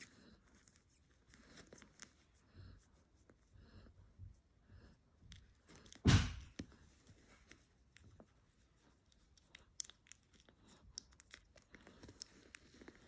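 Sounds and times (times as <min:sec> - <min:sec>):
puppy suckling wet clicks: 0:09.1 - 0:13.0.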